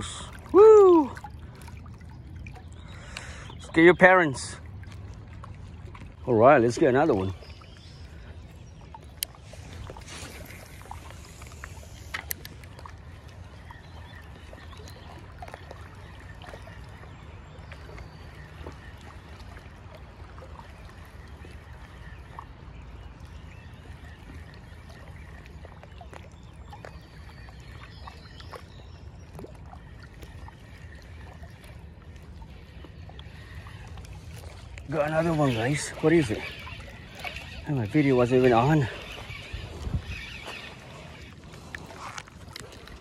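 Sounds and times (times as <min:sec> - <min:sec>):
faint water wash: 0:00.0 - 0:43.0.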